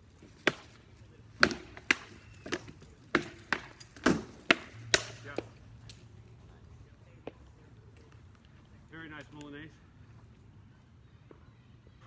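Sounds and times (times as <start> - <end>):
wooden swords striking shields: 0.2 - 5.5.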